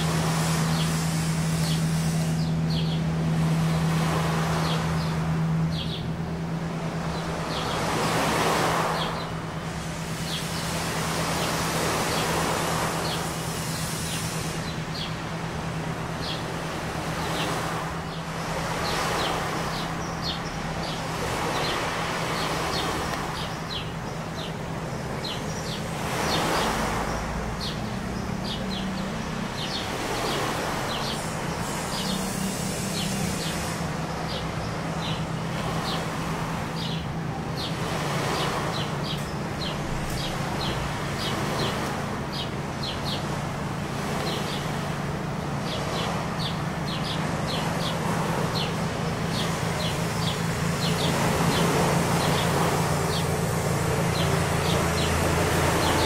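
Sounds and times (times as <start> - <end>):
boat engines humming: 0.0 - 56.0
small birds chirping: 0.0 - 56.0
rushing noise: 20.8 - 35.5.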